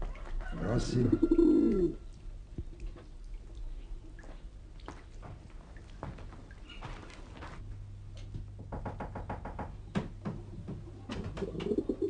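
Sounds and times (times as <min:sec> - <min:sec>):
knocking on a door: 0:08.6 - 0:11.8.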